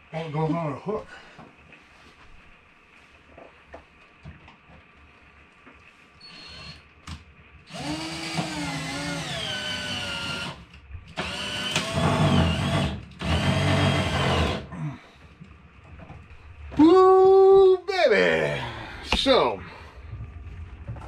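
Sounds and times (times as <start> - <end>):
power drill drilling: 6.2 - 6.8, 7.7 - 10.6, 11.2 - 14.7.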